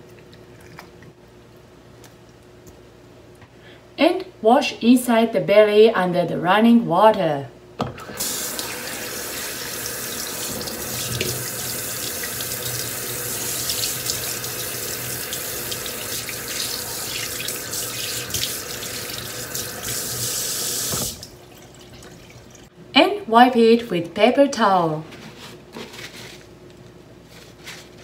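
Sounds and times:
tap water rushing into sink: 7.8s - 22.2s.

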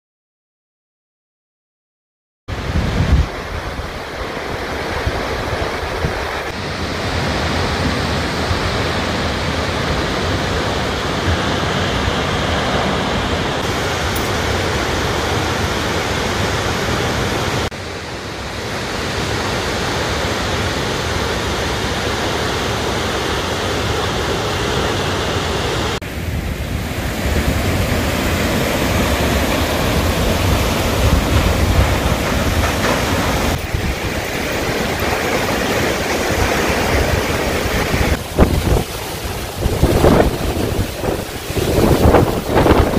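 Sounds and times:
waterfall rushing: 2.5s - 42.9s.

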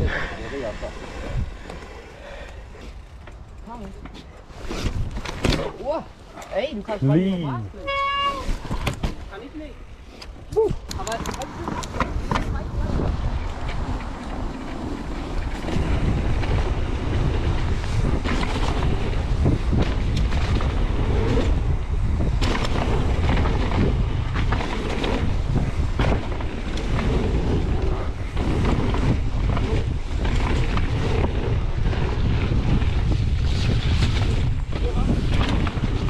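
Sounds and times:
bike tyre noise: 0.0s - 7.2s, 7.8s - 36.0s
wind buffeting microphone: 0.0s - 36.0s
bike clattering over bumps: 13.6s - 36.0s.

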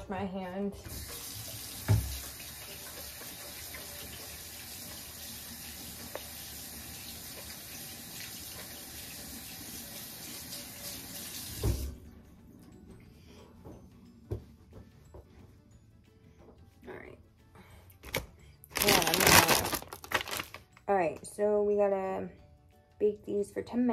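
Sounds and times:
tap water running: 0.7s - 12.1s.

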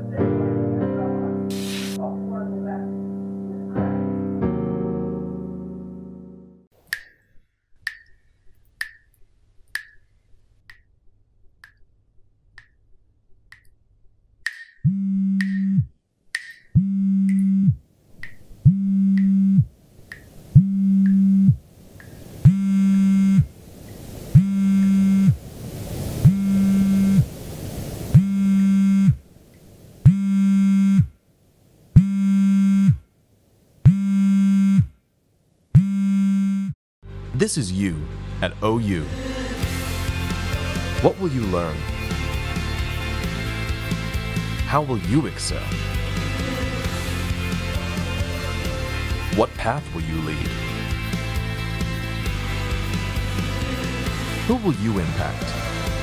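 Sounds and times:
hiss: 1.5s - 2.0s
water drops dripping: 6.8s - 10.1s, 11.6s - 11.9s, 12.6s - 12.8s, 13.5s - 13.8s, 14.5s - 17.5s, 18.2s - 18.5s, 20.1s - 22.6s
low buzzing synthesizer tone: 14.8s - 15.9s, 16.8s - 17.8s, 18.6s - 19.7s, 20.6s - 21.6s, 22.4s - 23.5s, 24.3s - 25.4s, 26.2s - 27.3s, 28.1s - 29.2s, 30.0s - 31.1s, 32.0s - 33.0s, 33.9s - 34.9s, 35.8s - 36.8s.

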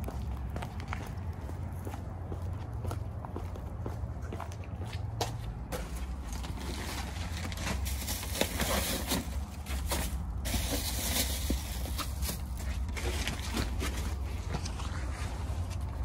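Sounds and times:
steady low rumble: 0.0s - 8.3s
footsteps on brick floor: 0.0s - 16.0s
delivery bag rustling: 6.2s - 15.9s.

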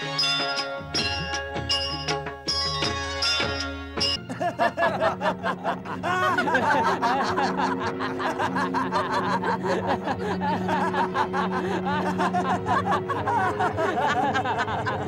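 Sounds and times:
background music: 0.0s - 15.0s
crowd laughing and jeering: 4.2s - 15.0s.

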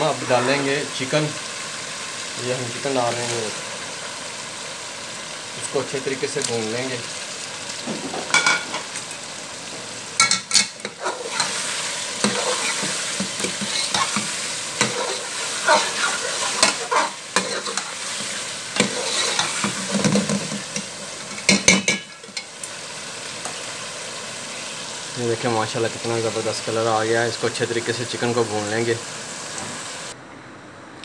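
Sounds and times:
chicken sizzling in a pot: 0.0s - 30.2s
ladle scraping and knocking pot: 12.2s - 22.5s.

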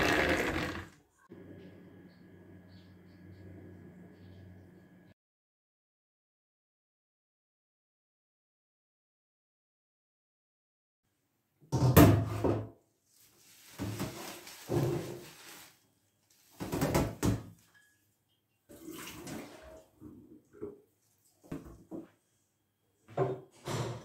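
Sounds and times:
water splashing into metal sink: 18.7s - 19.9s.

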